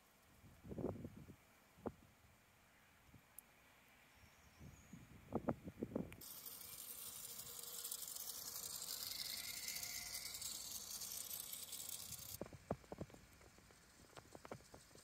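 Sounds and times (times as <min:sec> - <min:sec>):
clockwork motor whirring rattle: 0:06.2 - 0:15.0.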